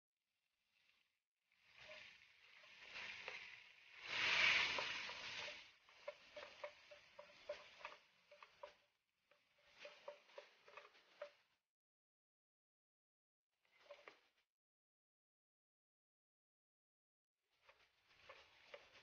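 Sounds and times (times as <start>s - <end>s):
spatula scraping and tapping pan: 4.4s - 8.8s, 9.4s - 11.4s, 18.2s - 19.0s.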